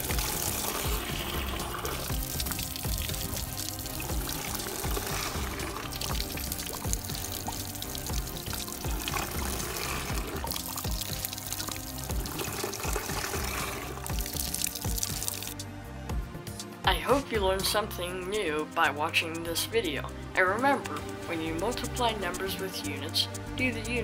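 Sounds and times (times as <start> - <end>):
water pouring and trickling: 0.0 - 15.6
background music: 0.0 - 24.0.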